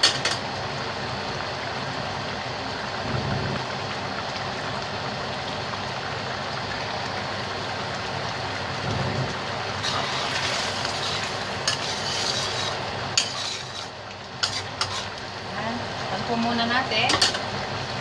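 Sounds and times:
curry bubbling: 0:00.7 - 0:18.0
ladle scraping wok: 0:09.7 - 0:15.2.

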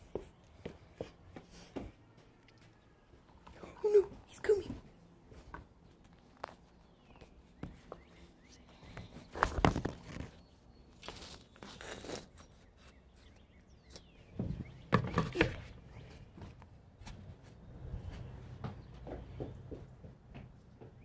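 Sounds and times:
knocks and rustling of handling: 0:03.4 - 0:17.4.

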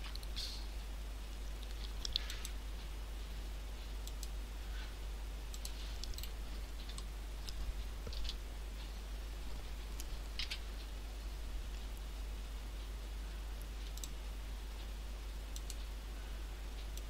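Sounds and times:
steady low hum: 0:00.0 - 0:17.0
mouse and keyboard clicking: 0:01.6 - 0:02.6, 0:10.0 - 0:10.7.

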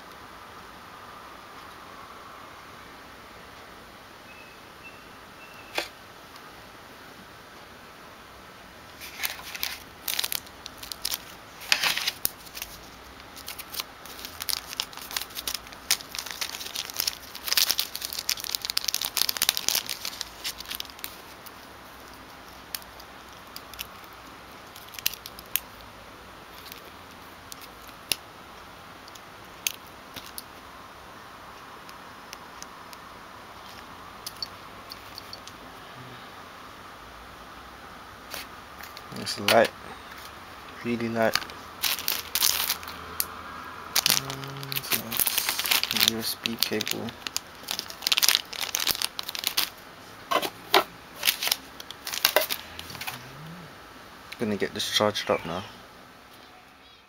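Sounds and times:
plastic packaging crinkling: 0:09.0 - 0:25.9, 0:26.5 - 0:28.2, 0:29.0 - 0:30.5, 0:40.8 - 0:43.0, 0:43.9 - 0:53.2.

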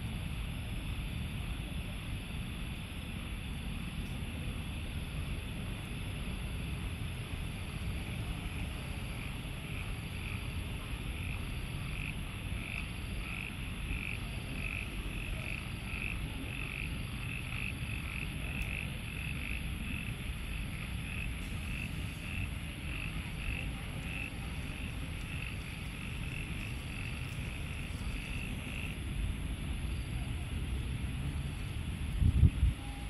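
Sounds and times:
frogs calling: 0:07.8 - 0:30.5.

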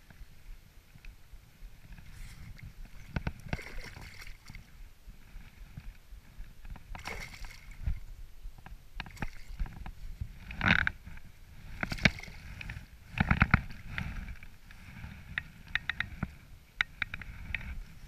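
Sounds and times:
water splashing and sloshing: 0:01.8 - 0:06.0, 0:06.6 - 0:08.1, 0:09.0 - 0:15.2.

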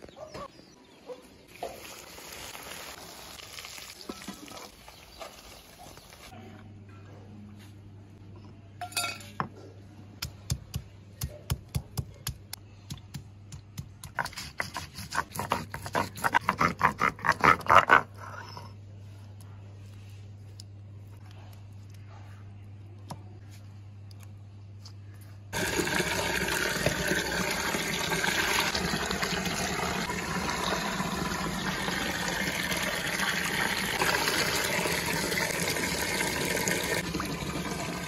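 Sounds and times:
stone roller crushing garlic: 0:13.8 - 0:18.5.

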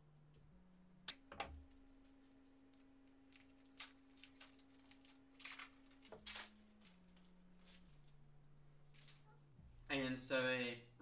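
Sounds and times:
faint steady hum: 0:00.0 - 0:11.0
wrapper crinkling: 0:01.6 - 0:09.3.

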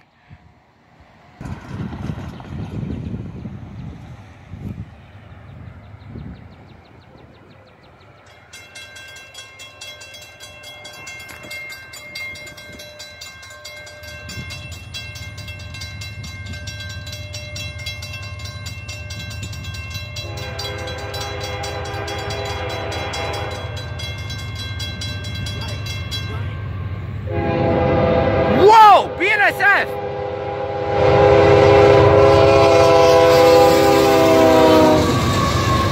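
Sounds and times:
freight train rumble: 0:00.0 - 0:35.9
railroad crossing bell ringing: 0:07.9 - 0:27.9
locomotive air horn: 0:20.2 - 0:23.8, 0:27.2 - 0:35.9.

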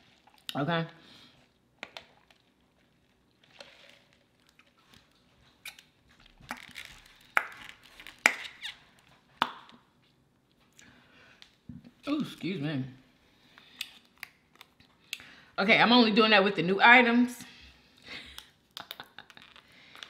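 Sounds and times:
slurping through a straw: 0:01.2 - 0:05.8
lip smacks and mouth clicks: 0:18.3 - 0:20.0.

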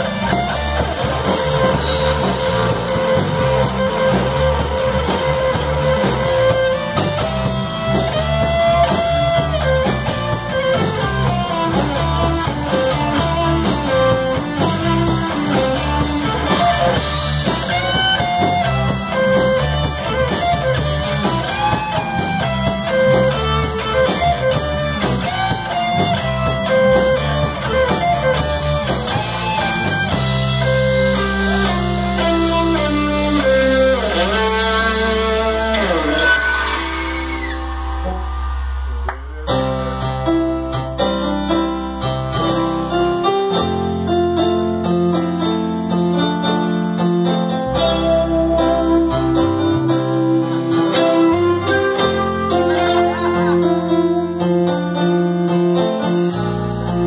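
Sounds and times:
guitar held notes and bends: 0:00.0 - 0:57.0
live rock band playing: 0:00.0 - 0:57.0.

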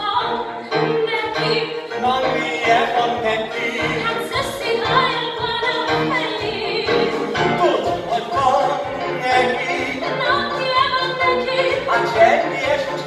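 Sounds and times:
person singing: 0:00.0 - 0:13.0
piano accompaniment: 0:00.0 - 0:13.0.

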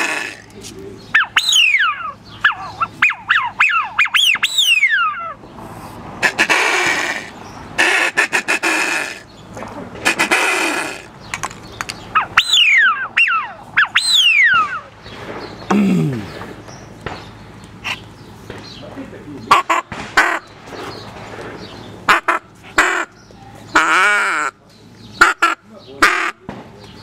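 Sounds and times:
duck call whistles: 0:00.0 - 0:00.5, 0:01.2 - 0:05.3, 0:06.2 - 0:09.2, 0:10.0 - 0:11.1, 0:12.2 - 0:14.9, 0:22.1 - 0:23.1, 0:25.2 - 0:26.4
raspy duck calls: 0:00.0 - 0:00.5, 0:06.2 - 0:09.3, 0:10.0 - 0:11.1, 0:19.5 - 0:20.5, 0:22.0 - 0:24.6, 0:25.2 - 0:26.4.

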